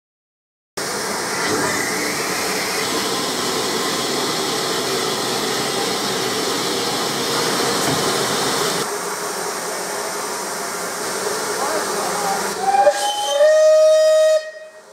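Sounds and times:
steam locomotive hissing steam: 0:00.8 - 0:08.9, 0:11.1 - 0:14.9.

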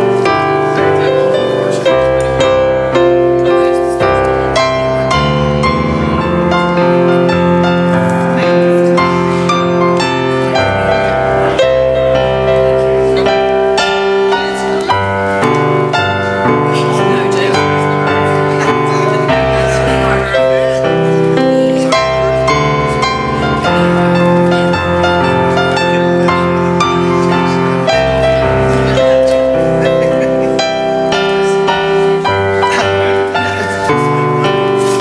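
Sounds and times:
slow piano piece: 0:00.0 - 0:35.0.

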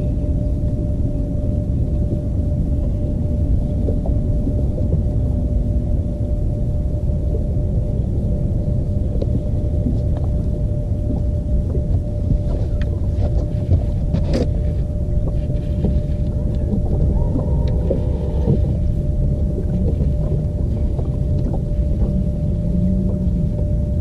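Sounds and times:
thin steady hum: 0:00.0 - 0:24.0
wind buffeting microphone: 0:07.8 - 0:24.0.

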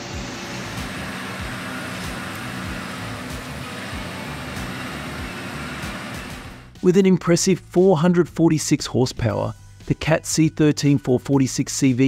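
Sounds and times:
knocks of stumps in shredder: 0:00.0 - 0:06.7
shredder running: 0:00.0 - 0:06.8.

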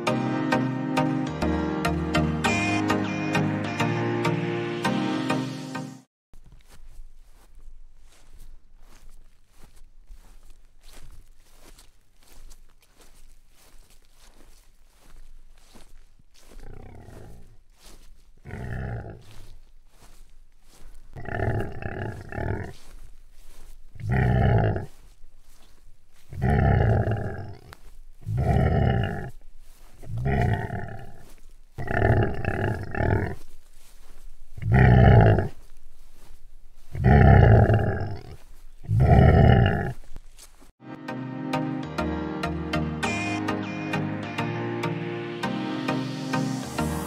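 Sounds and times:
deep animal call: 0:16.4 - 0:19.6, 0:21.2 - 0:25.6, 0:26.2 - 0:35.6, 0:36.8 - 0:40.1.

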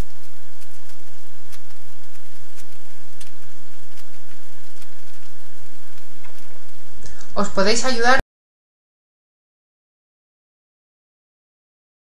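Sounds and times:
low hum and hiss: 0:00.0 - 0:08.2.

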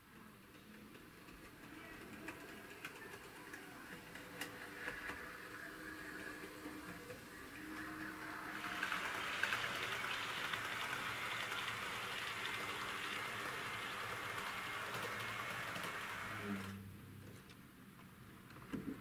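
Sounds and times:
model train wheels on metal track: 0:00.0 - 0:16.8.

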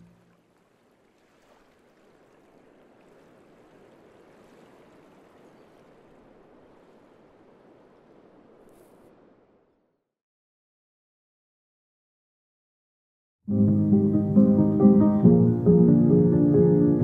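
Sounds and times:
running water rushing: 0:00.0 - 0:09.8.

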